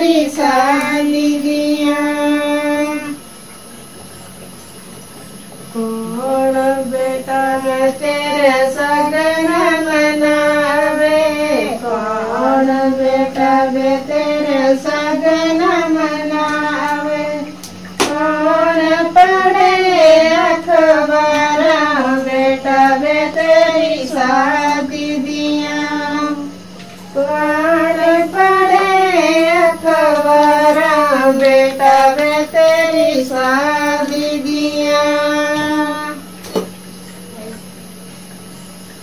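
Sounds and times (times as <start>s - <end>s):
woman singing unaccompanied: 0.0s - 3.3s, 5.7s - 36.4s.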